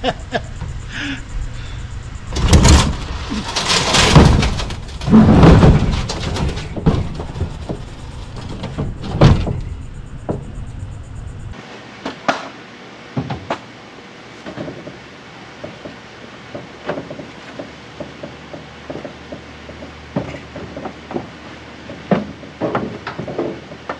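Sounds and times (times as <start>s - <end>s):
metal appliance scraping and thudding: 2.2s - 11.6s.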